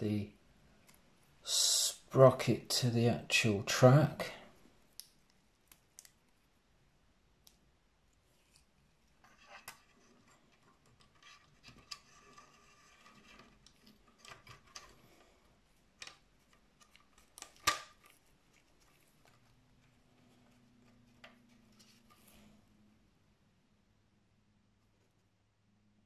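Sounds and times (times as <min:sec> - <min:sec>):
plastic parts clicking and rubbing: 0:08.3 - 0:22.5.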